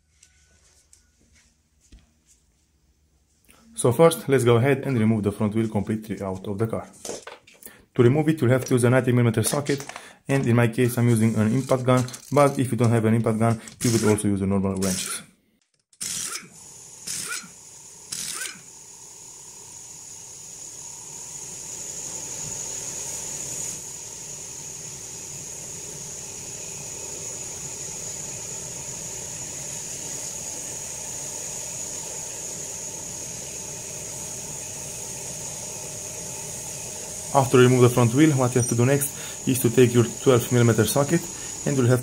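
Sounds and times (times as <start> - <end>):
thin high whine: 8.0 - 15.2, 16.2 - 42.0
impact wrench bursts: 11.4 - 14.2, 16.0 - 18.9, 35.0 - 42.0
air hiss: 16.2 - 42.0.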